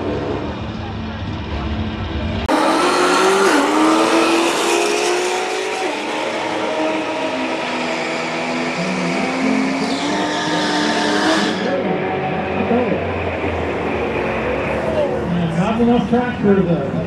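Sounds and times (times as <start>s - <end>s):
car engine revving hard: 2.5s - 15.1s.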